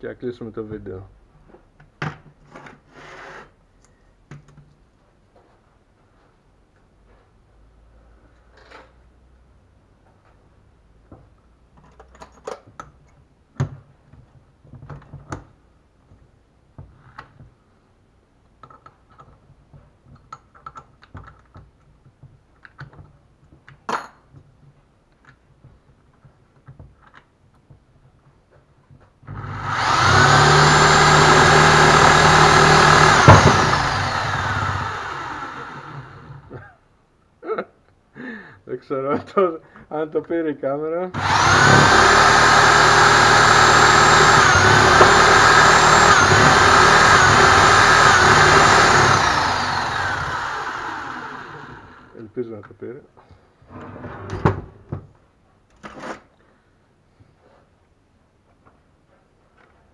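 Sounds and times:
electric drill whining: 29.3s - 36.6s, 41.2s - 52.1s.

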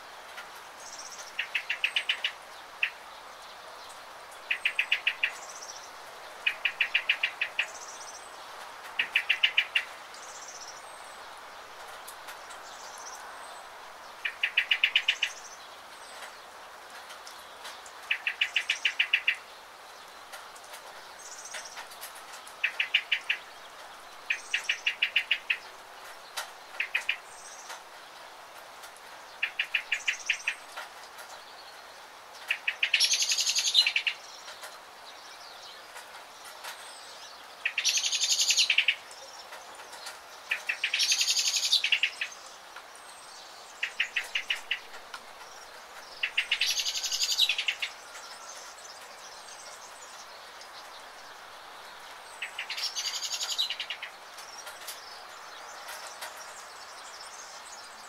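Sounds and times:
light rain hiss: 0.0s - 58.0s
small birds trilling: 0.8s - 58.0s
buzzy bird calls: 43.4s - 58.0s.

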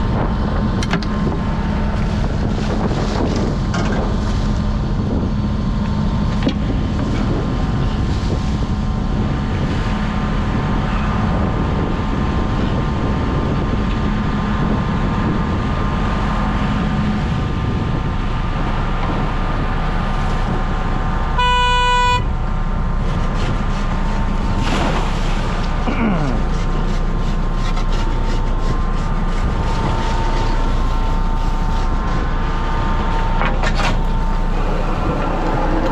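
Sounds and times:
boat engine running: 0.0s - 35.9s
water noise: 0.0s - 35.9s
wind: 0.0s - 35.9s
short horn toot: 21.4s - 22.3s.

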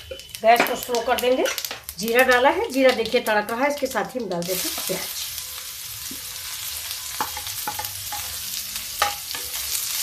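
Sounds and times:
onion sizzling in oil: 0.0s - 10.0s.

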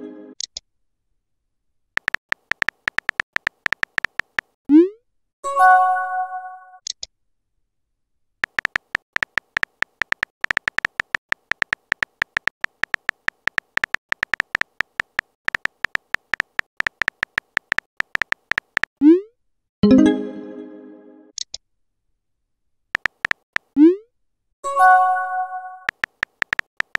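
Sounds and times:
simulated keyboard tap ticks: 2.0s - 4.6s, 8.4s - 19.0s, 23.0s - 23.7s, 25.9s - 26.9s.

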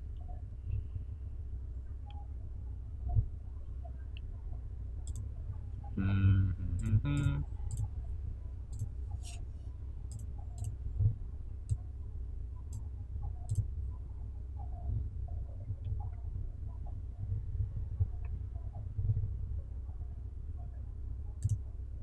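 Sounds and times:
low steady hum: 0.0s - 22.0s
computer mouse clicking: 5.0s - 5.2s, 6.8s - 7.9s, 8.7s - 9.4s, 10.1s - 10.8s, 21.4s - 21.6s.

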